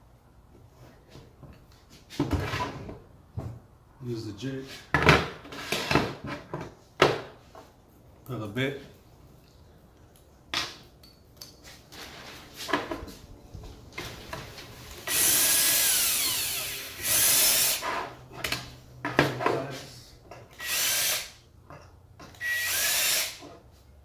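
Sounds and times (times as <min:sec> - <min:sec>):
cordless drill running: 0:15.0 - 0:17.8, 0:20.6 - 0:21.3, 0:22.4 - 0:23.4.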